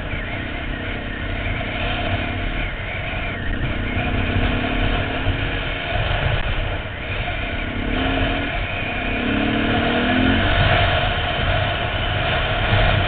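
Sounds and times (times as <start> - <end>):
dirt bike engine accelerating: 0.0 - 13.0.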